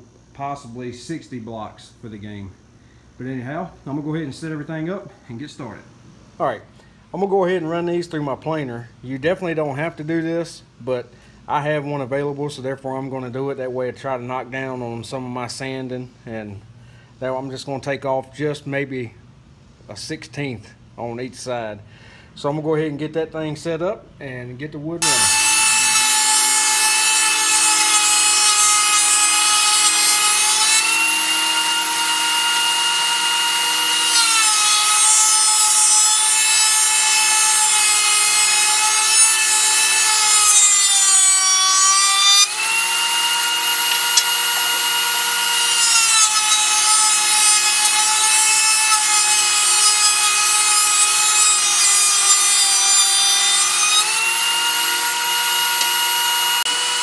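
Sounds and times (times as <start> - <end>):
thickness planer whining: 25.0 - 57.0.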